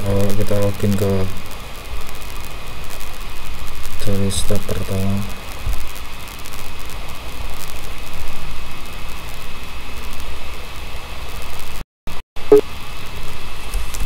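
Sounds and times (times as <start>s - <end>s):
faint high whine: 0.0s - 5.5s
steady background hiss: 0.0s - 11.8s.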